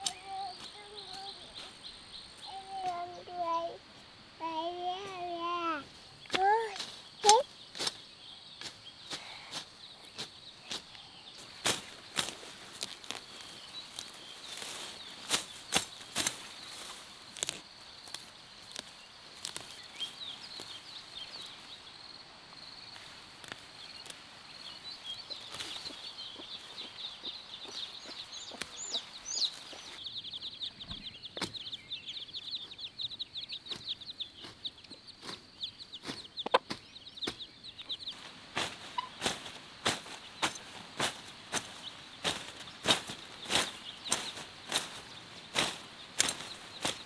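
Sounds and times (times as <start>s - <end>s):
blade chopping through weeds: 38.6s - 47.0s.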